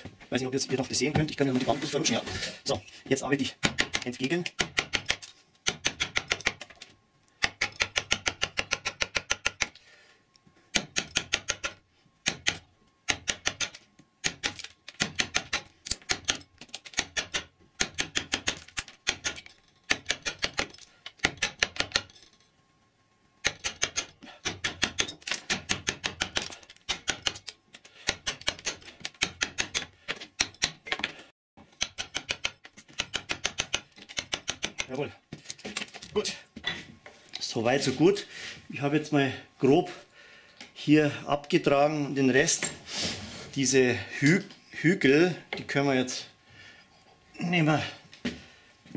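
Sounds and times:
mallet tapping carving gouge: 3.6 - 6.7, 7.4 - 9.8, 28.0 - 30.8, 31.7 - 34.9.

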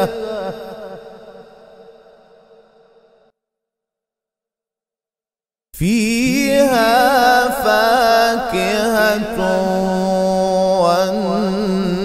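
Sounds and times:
man chanting melodically: 0.0 - 1.9, 5.8 - 12.0.

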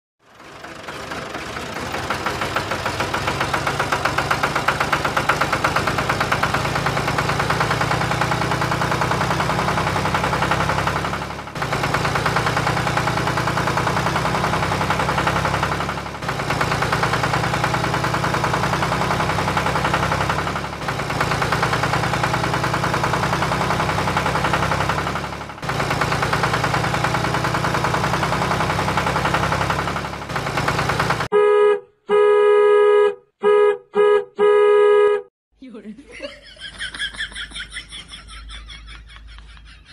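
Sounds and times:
engine idling with rapid knocking: 0.2 - 31.3.

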